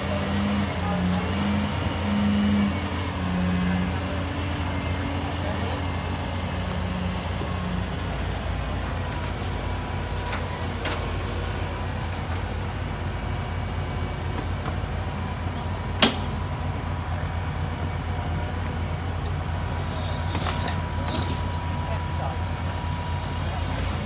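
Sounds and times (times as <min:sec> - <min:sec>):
heavy diesel machinery running: 0:00.0 - 0:24.0
sharp metal clank: 0:16.0 - 0:16.5.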